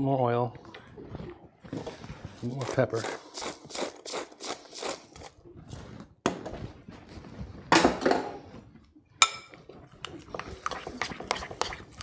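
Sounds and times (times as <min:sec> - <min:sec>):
pepper mill grinding: 0:02.4 - 0:05.4.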